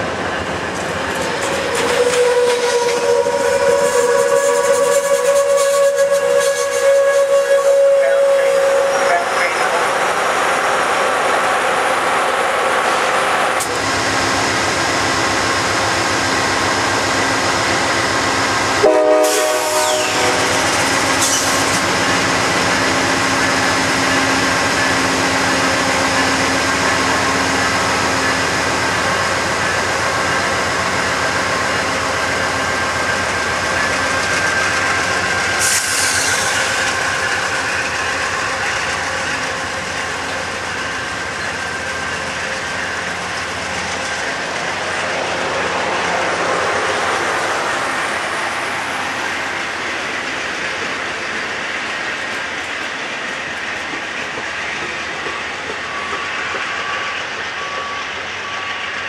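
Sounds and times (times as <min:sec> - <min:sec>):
passenger train rolling past: 0:00.0 - 0:59.0
train horn blast: 0:01.8 - 0:09.7, 0:18.8 - 0:20.7.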